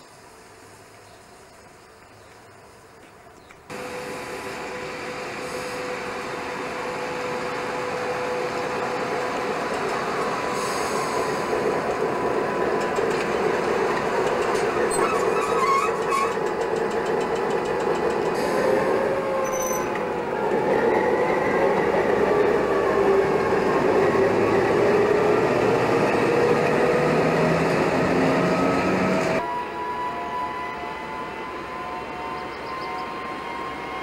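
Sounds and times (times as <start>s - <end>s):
diesel locomotive engine drone: 0.0s - 34.0s
train wheels rolling: 2.0s - 29.4s
wheels squealing: 14.4s - 16.6s, 19.2s - 20.0s.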